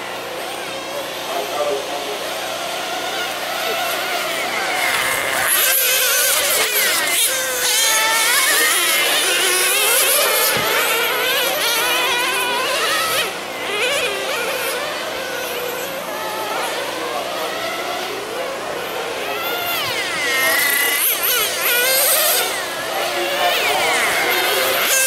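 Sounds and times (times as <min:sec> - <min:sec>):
rc car engines buzzing: 0:00.0 - 0:25.0.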